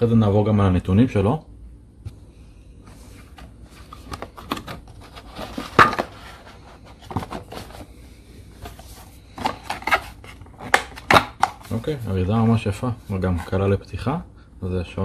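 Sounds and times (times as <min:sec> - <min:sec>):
box lid clicks and rustles: 0:03.4 - 0:07.9.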